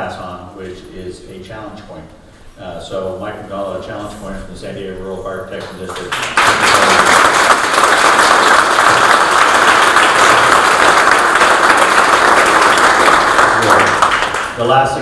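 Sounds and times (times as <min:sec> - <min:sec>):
audience applauding: 0:05.8 - 0:14.7.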